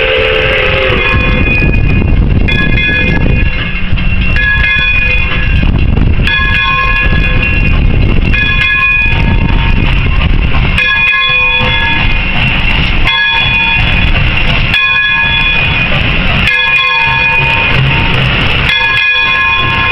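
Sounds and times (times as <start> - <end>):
steam whistle blasts: 0.0 - 1.8
locomotive low rumble: 0.0 - 19.9.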